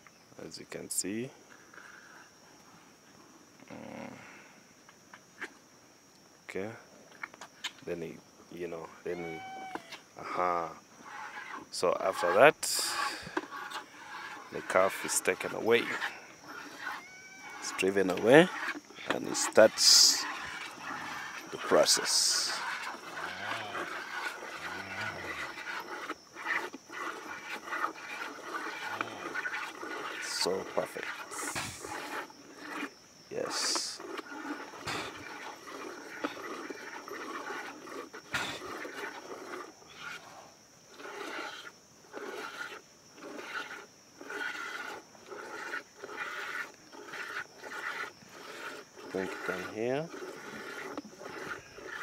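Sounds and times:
cattle mooing: 9.1s - 9.9s, 19.9s - 25.6s.

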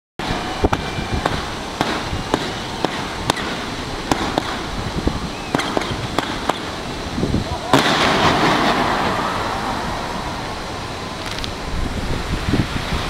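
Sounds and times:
fireworks bangs: 0.2s - 6.9s, 7.6s - 10.4s
background hiss: 0.2s - 13.0s.

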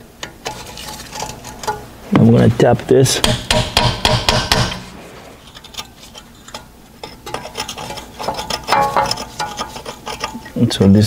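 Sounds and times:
hammer tapping metal: 3.2s - 4.9s.

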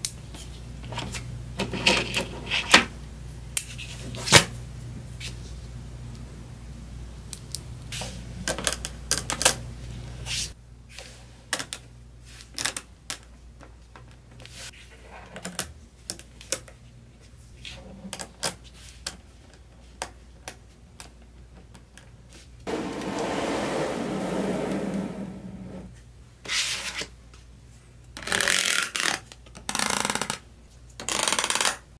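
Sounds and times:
toy car rubbing across table: 22.7s - 25.9s.

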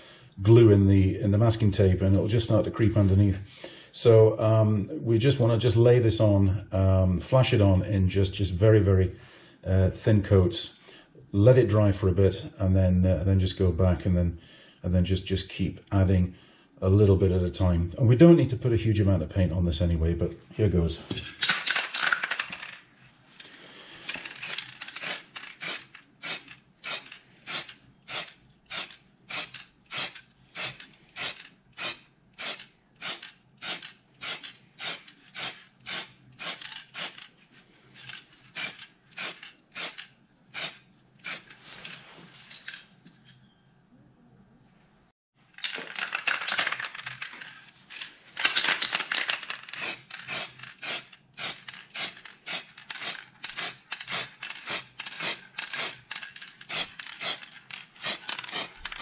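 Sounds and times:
spray paint hissing: 24.4s - 37.2s, 38.6s - 40.0s, 40.6s - 41.5s, 49.8s - 56.0s, 56.6s - 59.0s
mixing ball clacking in spray can: 49.4s - 59.0s.

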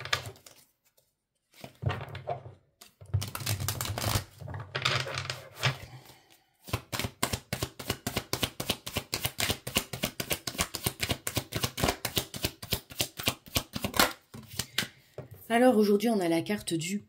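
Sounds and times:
cards rustling: 0.1s - 1.8s.

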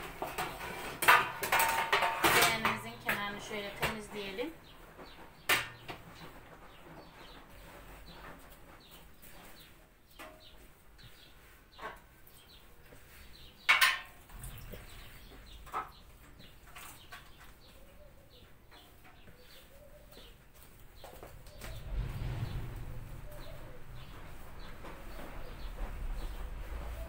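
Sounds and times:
faint bird calls: 17.5s - 27.0s
hands kneading dough: 23.1s - 27.0s.

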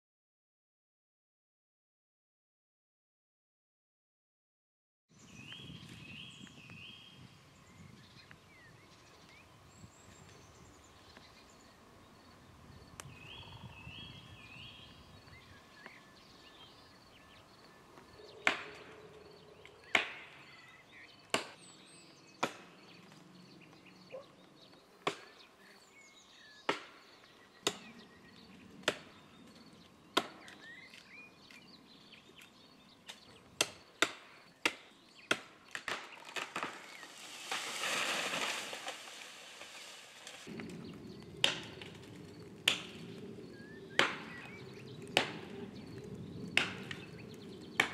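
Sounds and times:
axe chopping tree trunk: 26.6s - 27.0s, 33.6s - 39.0s.

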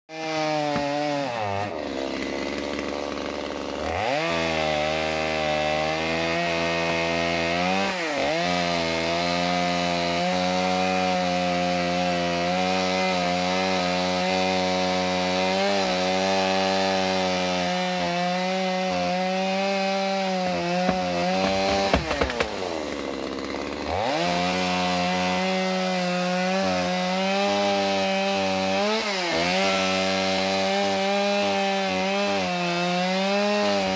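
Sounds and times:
chainsaw cutting wood: 0.1s - 33.9s
sharp knocks: 20.7s - 22.6s.

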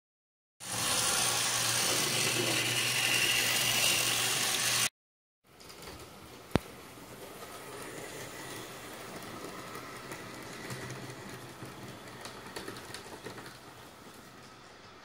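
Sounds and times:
model train motor whirr: 0.6s - 4.9s.

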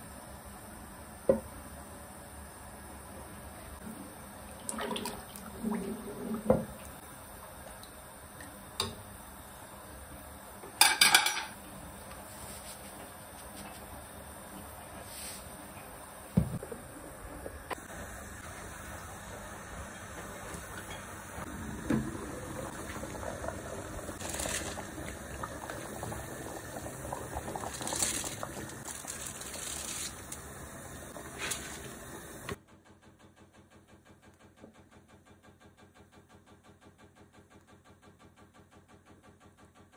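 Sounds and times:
broth boiling in a pot: 0.0s - 33.5s
utensils clattering against pot: 10.8s - 11.6s
rice poured into liquid splashing: 22.8s - 30.4s.

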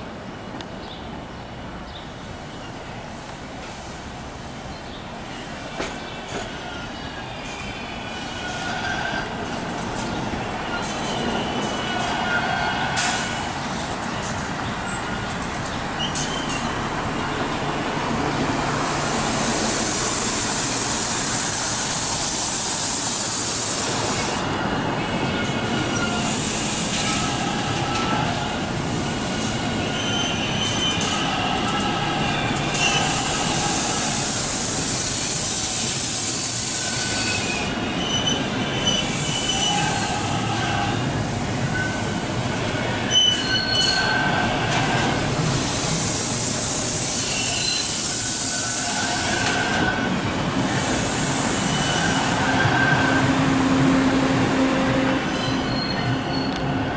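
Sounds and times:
subway train rumbling: 0.0s - 56.9s
wheel flange squeal: 16.0s - 16.8s, 29.2s - 34.2s, 36.5s - 41.0s, 43.0s - 45.1s, 47.0s - 50.2s, 51.5s - 53.3s, 55.3s - 56.8s.

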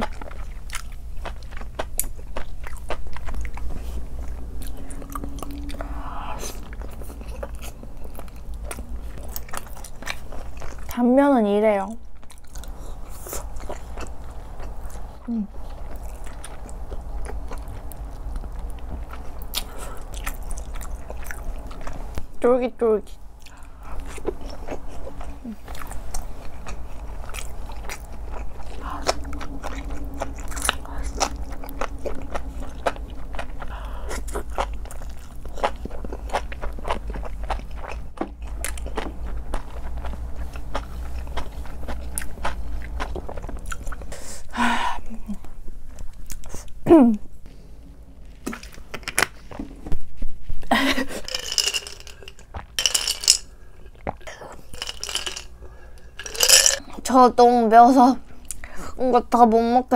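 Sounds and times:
wet sticky chewing: 0.0s - 11.0s, 23.4s - 44.3s.

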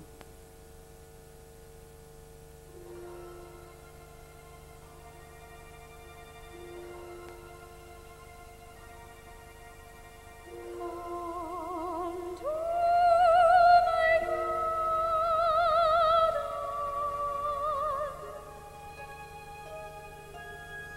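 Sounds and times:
orchestral chords: 2.7s - 13.0s
soprano singing with vibrato: 10.5s - 20.2s.

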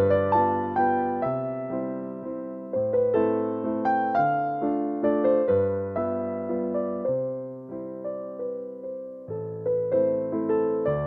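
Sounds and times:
slow gentle piano melody: 0.0s - 11.0s.

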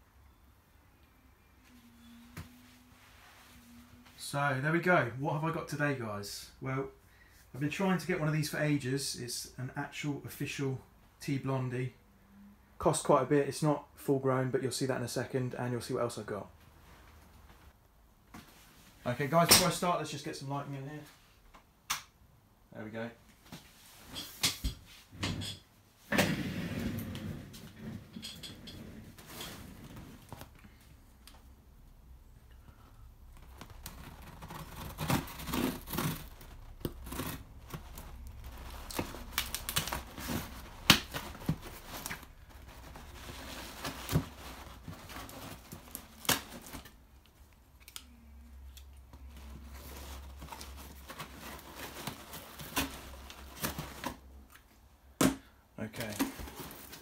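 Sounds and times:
tape tearing: 33.3s - 47.0s, 47.7s - 54.2s.

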